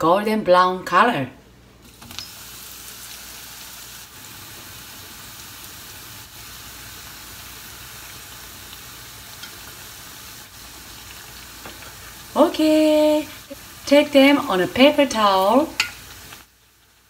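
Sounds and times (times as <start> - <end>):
bread deep-frying in oil: 1.8 - 17.0.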